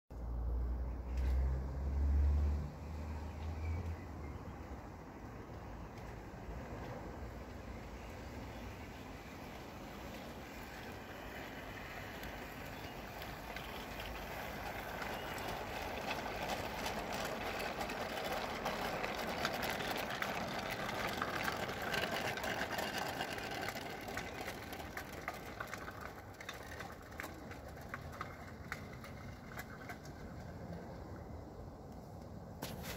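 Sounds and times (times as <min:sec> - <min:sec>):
sharp clicks from wheels: 0:00.2 - 0:32.9
model train rolling rumble: 0:06.8 - 0:31.9.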